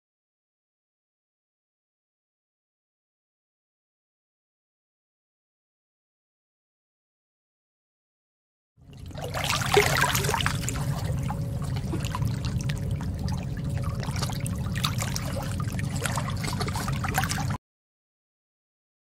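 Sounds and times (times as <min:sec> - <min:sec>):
faint steady hum: 0:08.8 - 0:17.6
underwater low rumble: 0:08.8 - 0:17.6
water trickling and bubbling: 0:08.8 - 0:17.6.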